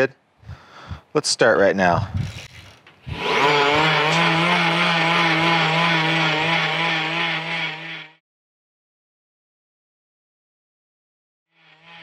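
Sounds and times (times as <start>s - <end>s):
bike blender whine: 2.0s - 8.2s, 11.5s - 12.0s.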